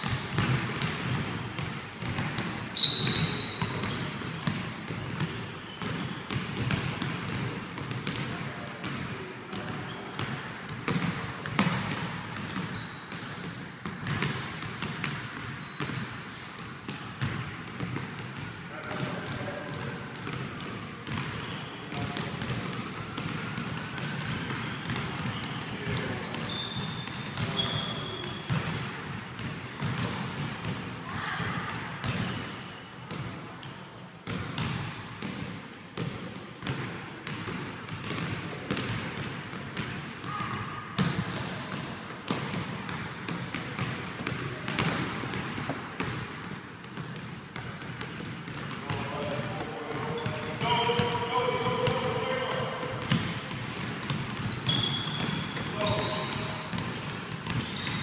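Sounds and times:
brief high squeak: 2.5s - 3.8s.

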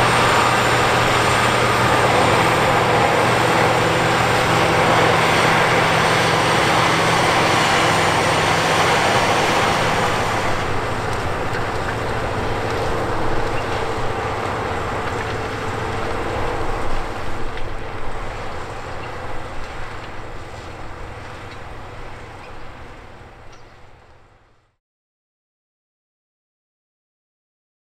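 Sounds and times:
implements working soil: 0.0s - 24.5s
tractor diesel engine running: 0.0s - 24.8s.

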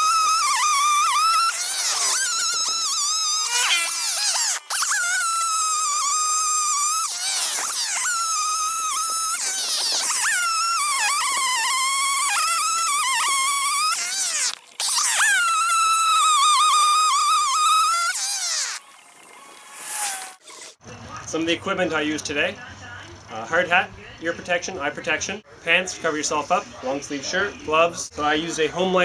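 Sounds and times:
chainsaw cutting logs: 0.0s - 20.5s.

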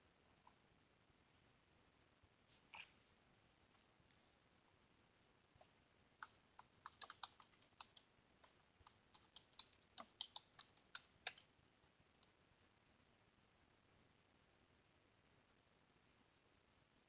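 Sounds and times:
computer keyboard typing: 6.2s - 11.5s.

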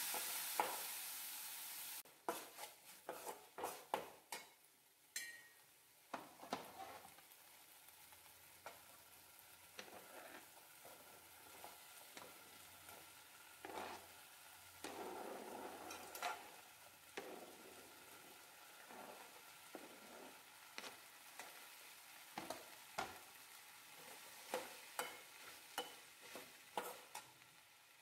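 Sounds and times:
faint sizzling in a pan: 0.0s - 28.0s
spatula scraping a pan: 2.2s - 4.5s, 6.1s - 7.2s, 9.6s - 27.4s.

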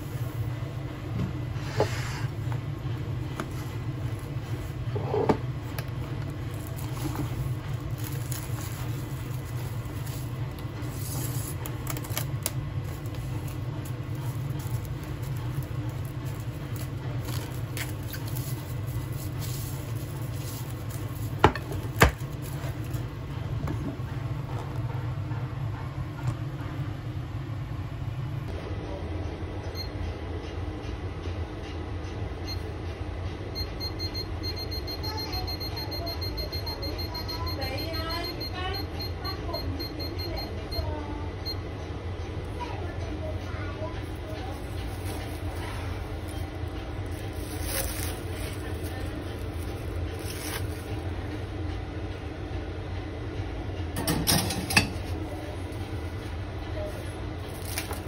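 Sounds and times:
steady low hum: 0.0s - 58.0s
plastic wrap rustling: 5.6s - 23.2s, 44.0s - 51.2s, 56.9s - 58.0s.

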